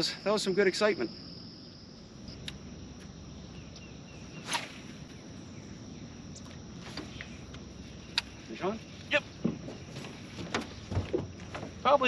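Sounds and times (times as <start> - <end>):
insects droning: 0.0 - 12.0
faint clicks: 7.2 - 8.3.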